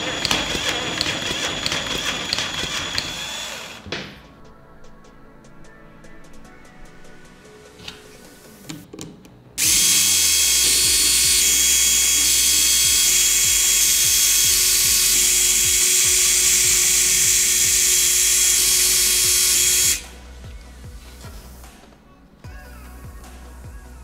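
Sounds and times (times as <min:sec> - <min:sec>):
electric screwdriver running: 0:00.0 - 0:03.9, 0:09.6 - 0:20.1.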